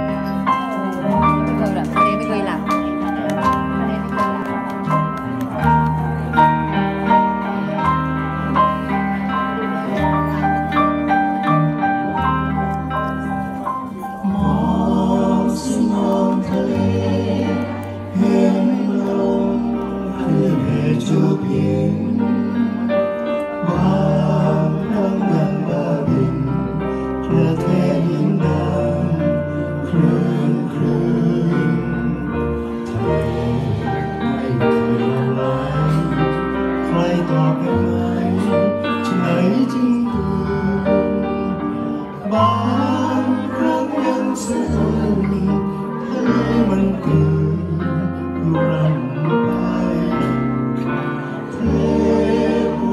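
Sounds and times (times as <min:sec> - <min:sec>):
electric bass low notes: 0:00.0 - 0:52.9
live band playing: 0:00.0 - 0:52.9
person singing: 0:13.8 - 0:52.9.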